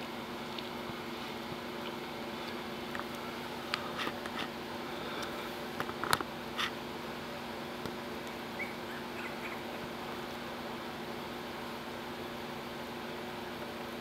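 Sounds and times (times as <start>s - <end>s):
steady low hum: 0.0s - 14.0s
puppies squeaking: 8.6s - 9.8s.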